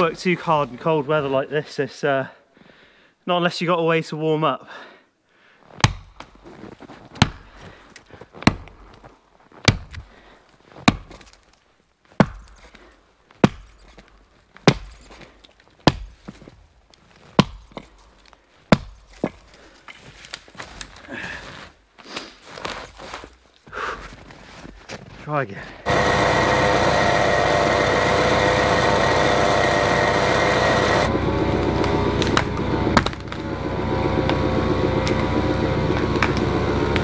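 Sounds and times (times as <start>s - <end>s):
axe chopping wood: 5.8s - 6.3s, 7.2s - 7.6s, 8.4s - 8.8s, 9.6s - 10.0s, 10.8s - 11.4s, 12.2s - 12.8s, 13.4s - 14.0s, 14.6s - 15.2s, 15.8s - 16.3s, 17.4s - 17.9s, 18.7s - 19.4s, 31.6s - 33.5s, 35.9s - 37.0s.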